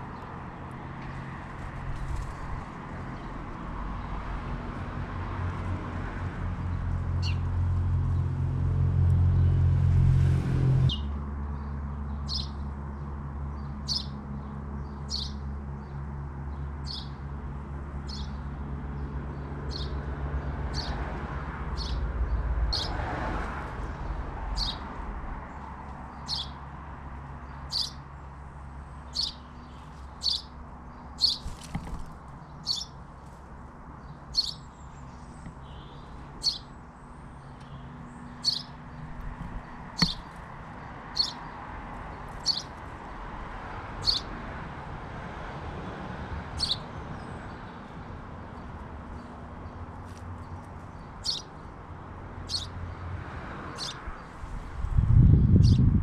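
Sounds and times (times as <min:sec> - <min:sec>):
distant traffic rumble: 0:00.0 - 0:56.0
robin short sharp calls: 0:27.7 - 0:28.0, 0:29.1 - 0:30.6, 0:31.2 - 0:32.0, 0:32.6 - 0:33.0, 0:34.3 - 0:34.7, 0:35.3 - 0:36.7, 0:37.4 - 0:38.8, 0:39.9 - 0:40.4, 0:41.1 - 0:41.5, 0:42.4 - 0:42.8, 0:44.0 - 0:44.3, 0:46.6 - 0:46.9, 0:51.0 - 0:51.5, 0:52.5 - 0:52.8, 0:53.8 - 0:54.0.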